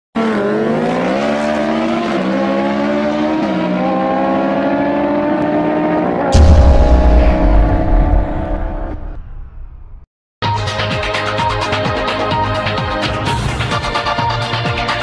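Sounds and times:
loud deep boom: 0:06.4 - 0:10.0
short whoosh: 0:06.4 - 0:10.0.

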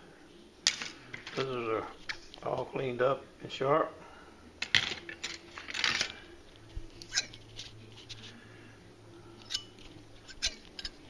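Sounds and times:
metal knives clinking: 0:07.0 - 0:07.5, 0:09.4 - 0:11.0.

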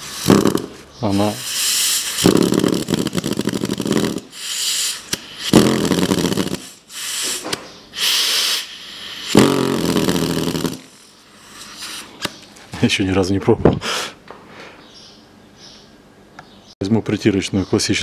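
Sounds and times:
pneumatic tool pulsing: 0:00.0 - 0:12.2
air hissing: 0:00.0 - 0:12.4.

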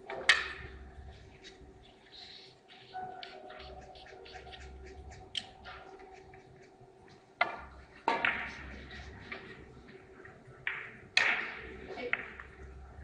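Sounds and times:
steady hum: 0:00.0 - 0:13.0
cue tip striking ball: 0:07.4 - 0:08.8.

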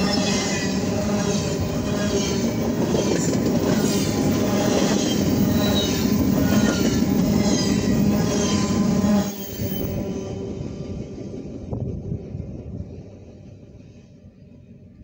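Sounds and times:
train wheels on rails: 0:00.0 - 0:15.0
high-pitched wheel squeals: 0:04.8 - 0:10.5.

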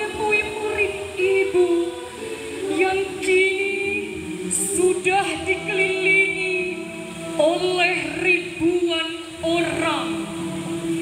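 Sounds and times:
group singing in unison: 0:00.0 - 0:08.2.

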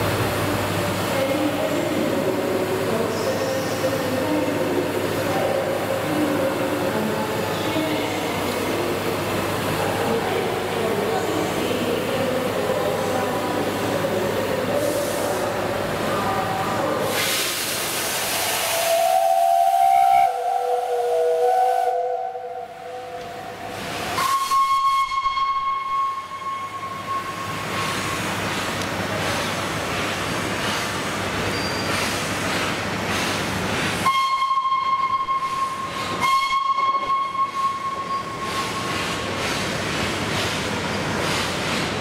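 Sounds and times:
steam locomotive hissing: 0:00.0 - 0:42.0
steam whistle blast: 0:18.4 - 0:23.2, 0:24.2 - 0:27.4, 0:34.0 - 0:38.8.

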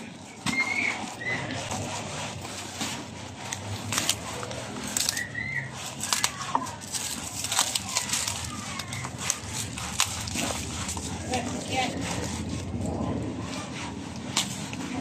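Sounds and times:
plastic wrap crinkling: 0:00.3 - 0:13.6
scissors snipping: 0:05.9 - 0:11.1.

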